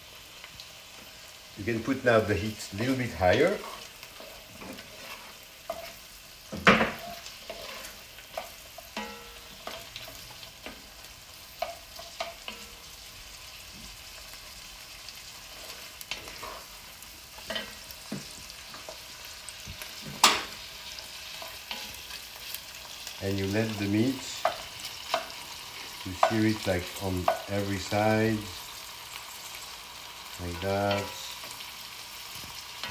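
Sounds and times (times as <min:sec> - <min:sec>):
meat and onions sizzling: 0:00.0 - 0:32.9
wooden spoon scraping pot: 0:03.3 - 0:06.1, 0:06.9 - 0:08.6.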